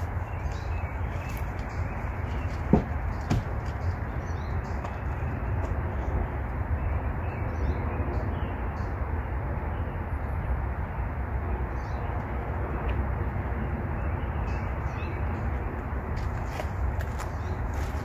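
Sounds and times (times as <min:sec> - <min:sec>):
low rumbling background noise: 0:00.0 - 0:18.0.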